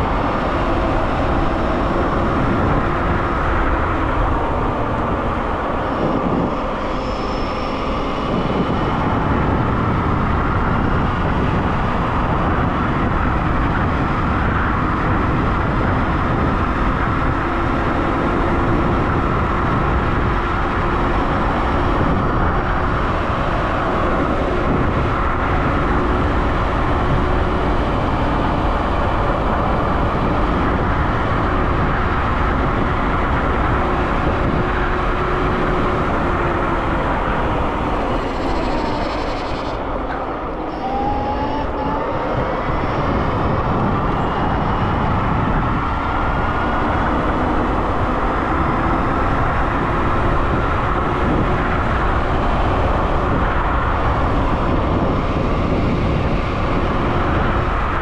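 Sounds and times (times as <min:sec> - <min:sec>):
wind rush on microphone: 0:00.0 - 0:58.0
electric motor whine: 0:33.7 - 0:49.0.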